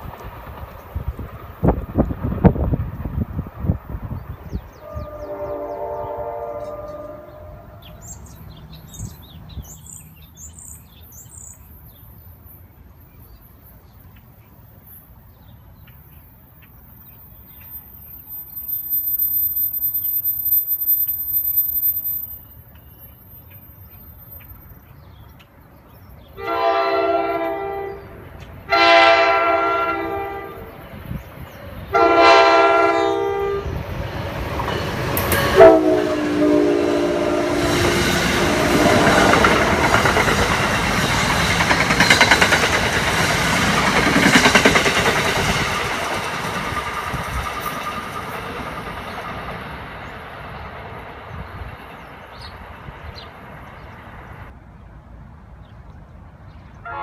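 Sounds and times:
train rumble and clatter: 0.0 - 56.5
train air horn blasts: 4.8 - 8.0, 26.4 - 30.7, 31.9 - 33.8, 35.3 - 39.4.

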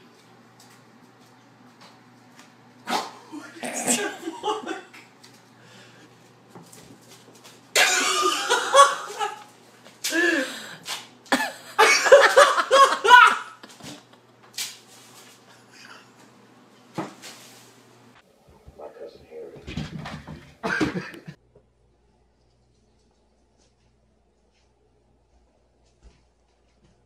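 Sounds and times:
person laughing hard: 3.2 - 5.1, 7.8 - 9.5, 11.3 - 14.1, 20.6 - 21.4.

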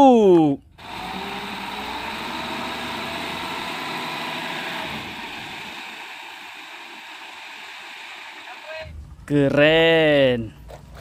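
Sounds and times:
hydraulic hoist raising: 0.8 - 8.8
diesel truck engine running: 0.8 - 9.2.

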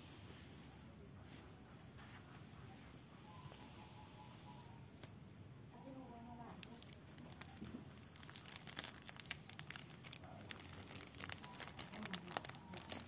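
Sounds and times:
plastic wrapping crinkling: 6.5 - 13.0.

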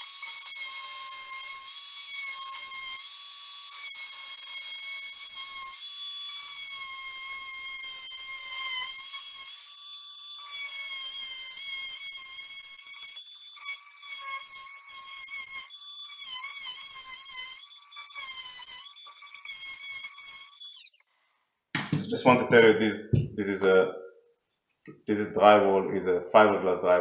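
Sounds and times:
oscillating multi-tool whine: 0.0 - 21.1.

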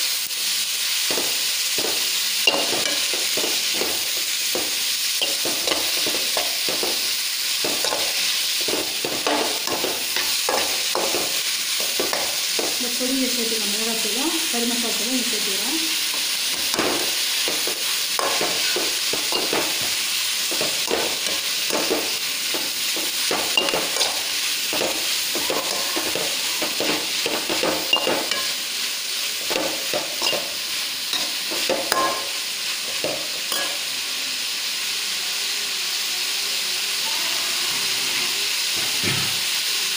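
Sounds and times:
cauliflower sizzling in wok: 0.0 - 39.9
metal ladle scraping pan: 16.6 - 28.6.

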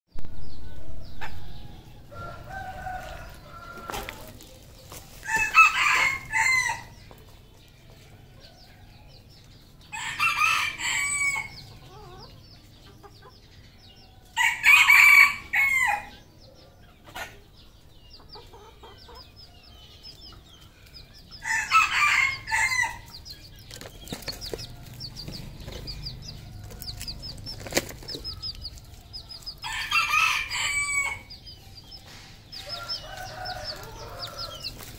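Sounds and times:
roosters crowing: 0.5 - 7.1, 8.0 - 12.4, 13.9 - 16.3, 21.2 - 34.9
faint high chirping: 15.4 - 34.9.

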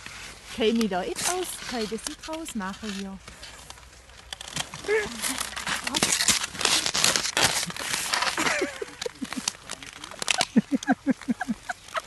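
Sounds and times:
clothing crunching in snow: 0.0 - 12.0
woman laughing: 4.9 - 5.4, 7.7 - 12.0.

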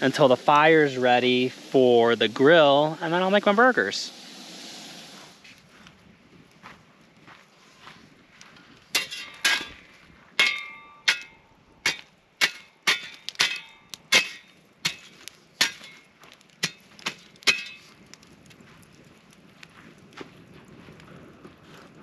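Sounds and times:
shovel clanking against logs and rocks: 8.9 - 18.0.

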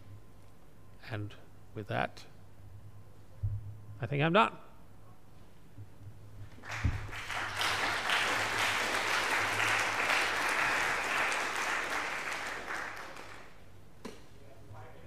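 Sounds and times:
audience applauding: 6.5 - 13.6.

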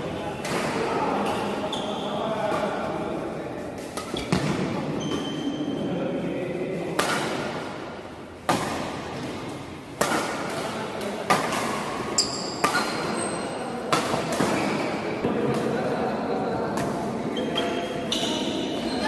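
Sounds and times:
shoes squeaking on court: 1.4 - 2.7, 3.8 - 5.8, 12.1 - 13.8, 17.3 - 19.0
rackets hitting shuttlecock: 3.8 - 5.5, 6.8 - 16.0.

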